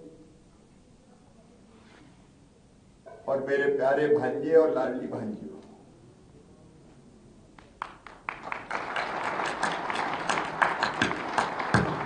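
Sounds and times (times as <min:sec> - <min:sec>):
audience applause: 0:07.8 - 0:12.0.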